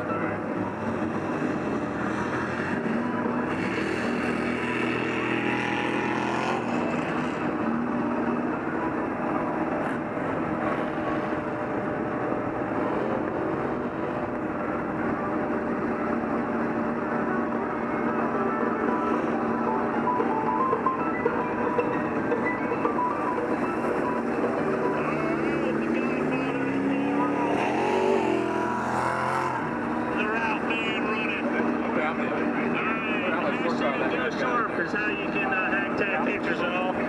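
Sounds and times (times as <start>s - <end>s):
diesel engine under load: 0.0s - 37.0s.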